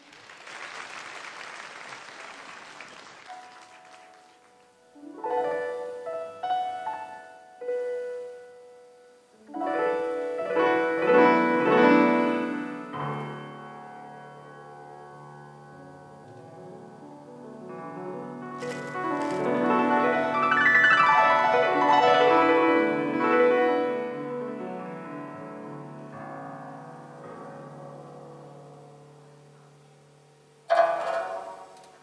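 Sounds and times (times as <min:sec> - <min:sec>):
audience applause: 0:00.0 - 0:04.8
solo piano playing: 0:03.3 - 0:32.0.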